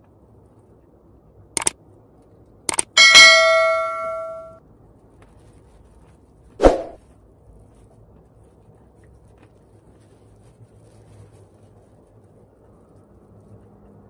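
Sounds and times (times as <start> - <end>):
bell ding: 3.0 - 4.6.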